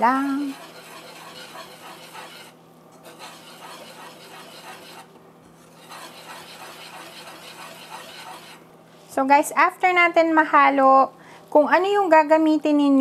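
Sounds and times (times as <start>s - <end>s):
whisk scraping batter in saucepan: 0.0s - 9.1s.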